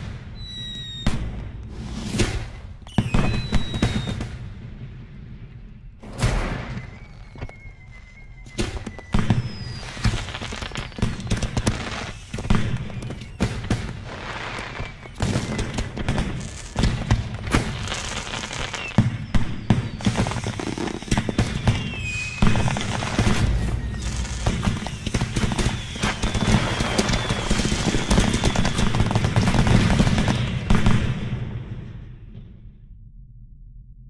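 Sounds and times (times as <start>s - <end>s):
firework whistles: 0.0s - 4.4s, 5.8s - 31.0s
fireworks bangs and crackling: 0.0s - 32.7s.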